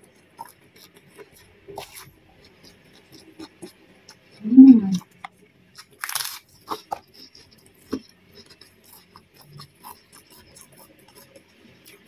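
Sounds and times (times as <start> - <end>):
soft chewing: 0.0 - 12.0
cracker crunching: 5.8 - 11.3.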